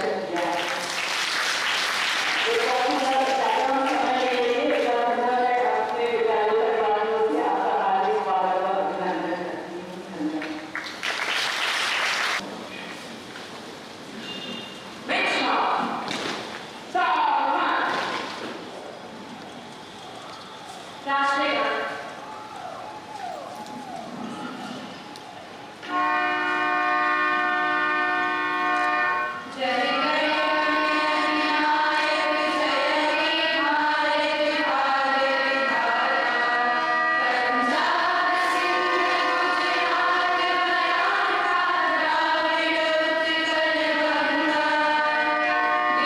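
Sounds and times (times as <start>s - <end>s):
choir singing: 29.5s - 46.0s.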